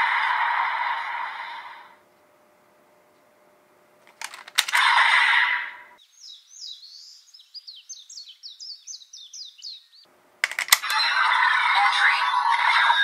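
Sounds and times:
sharp clicks: 4.0 - 5.0, 10.4 - 11.0.

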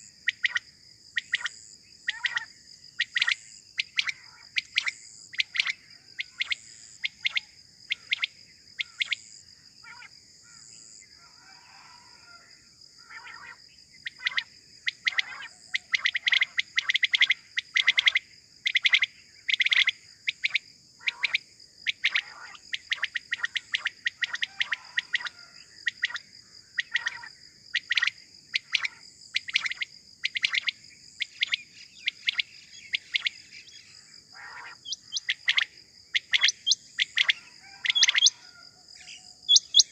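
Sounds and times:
quails calling: 2.1 - 9.2, 13.0 - 26.2, 26.8 - 33.4, 34.4 - 38.6, 39.5 - 39.9.

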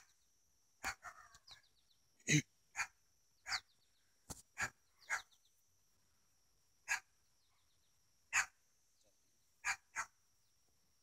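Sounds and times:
dog barking: 2.8 - 3.7, 4.6 - 5.3, 6.9 - 7.1, 8.3 - 8.6, 9.6 - 10.2.

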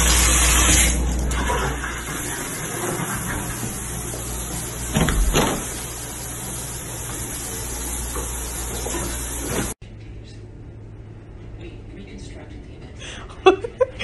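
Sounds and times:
water running from bathtub tap: 0.0 - 9.8.

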